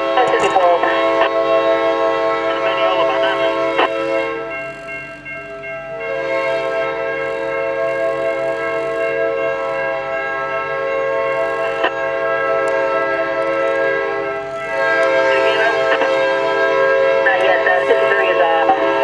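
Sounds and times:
locomotive air horn chord: 0.0 - 4.8, 5.8 - 19.0.

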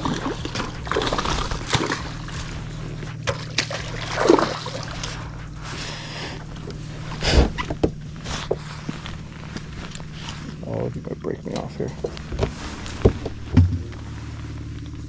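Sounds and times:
fish thrashing splashes in water: 0.0 - 5.3.

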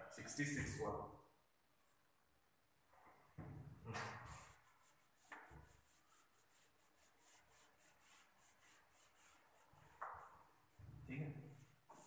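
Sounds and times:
duster wiping whiteboard: 4.0 - 12.0.

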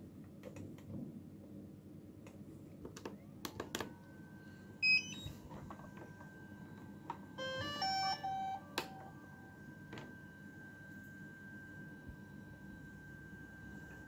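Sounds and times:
short beep: 7.4 - 9.2
start-up jingle: 7.4 - 9.5.

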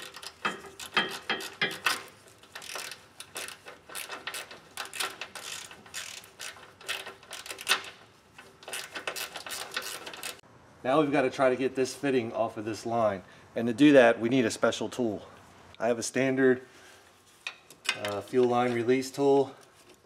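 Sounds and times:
socket ratchet clicking: 0.0 - 8.0.

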